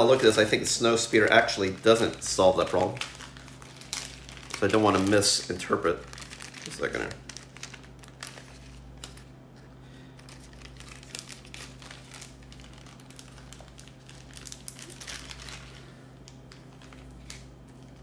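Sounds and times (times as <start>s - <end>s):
plastic packaging and paper crinkling: 0.0s - 18.0s
steady low hum: 0.0s - 18.0s.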